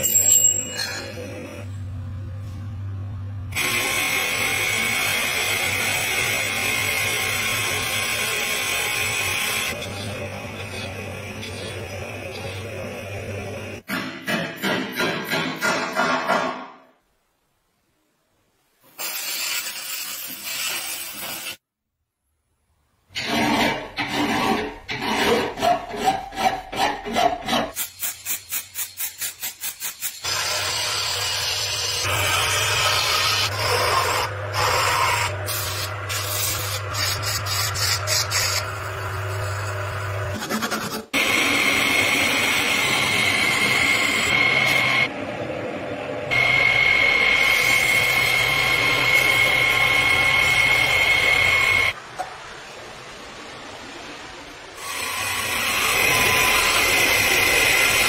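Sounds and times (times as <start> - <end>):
sandpaper on spinning wood: 33.0 - 38.8
lathe running with high whine: 41.2 - 52.0, 54.8 - 58.0.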